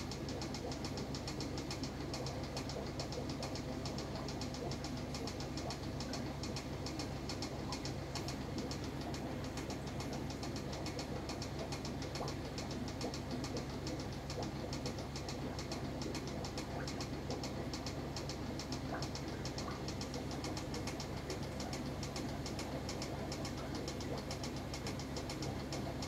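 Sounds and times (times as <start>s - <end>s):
low mains hum: 0.0s - 26.0s.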